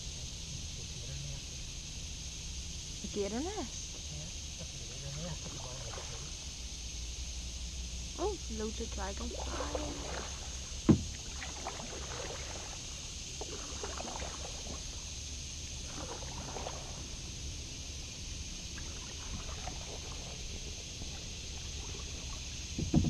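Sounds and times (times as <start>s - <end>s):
kayak paddle strokes in water: 5.4s - 6.4s, 9.2s - 18.0s, 18.6s - 23.0s
water trickling off paddle: 8.6s - 17.4s, 18.6s - 23.0s
loud knock: 22.8s - 23.0s.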